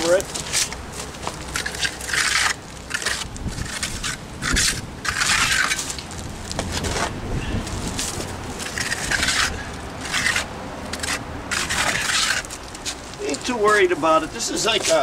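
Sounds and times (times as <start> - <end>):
trowel scraping stucco on wall: 0.0 - 6.0, 6.7 - 15.0.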